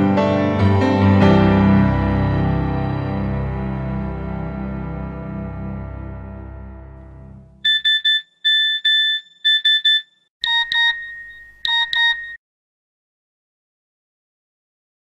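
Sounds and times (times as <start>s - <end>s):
background music: 0.0s - 7.6s
lower tone beep pattern: 7.7s - 12.4s
phone message alert beeps: 7.7s - 12.4s.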